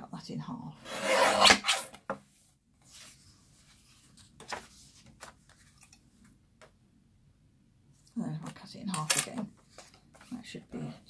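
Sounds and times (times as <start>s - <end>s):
paper guillotine cutting card: 0.9s - 1.9s
paper rustling: 2.8s - 5.9s.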